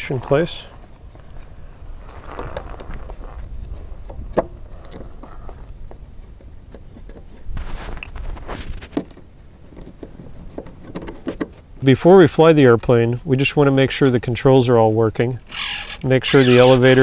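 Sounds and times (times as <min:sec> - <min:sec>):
plastic parts rubbing and knocking: 0:02.2 - 0:11.7.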